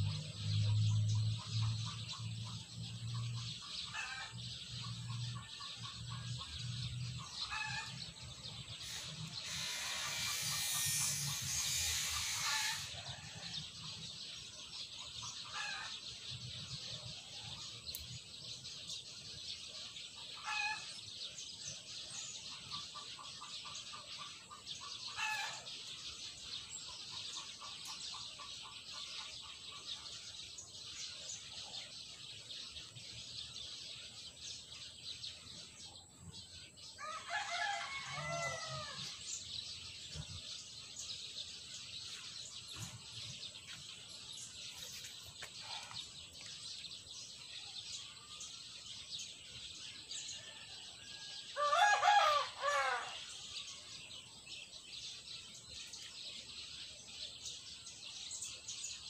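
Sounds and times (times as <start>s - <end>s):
rooster crowing: 37.0s - 39.2s, 50.4s - 53.3s.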